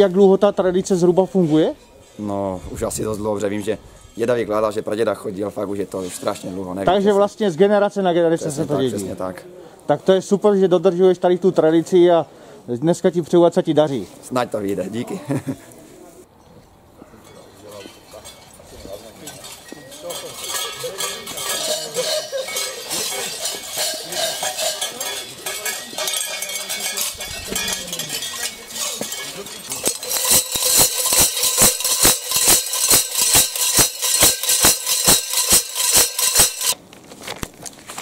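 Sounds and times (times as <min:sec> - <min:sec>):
metal bells jangling: 0:17.3 - 0:36.8
tube bells clanging rhythmically: 0:17.3 - 0:36.8.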